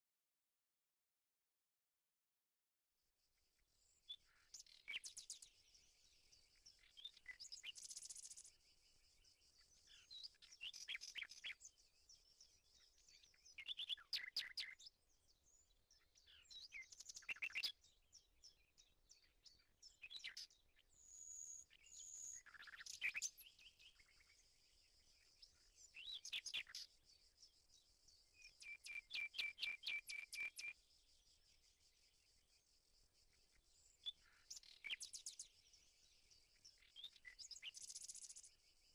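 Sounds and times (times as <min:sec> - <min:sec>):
songbirds chirping: 0:03.6 - 0:38.9.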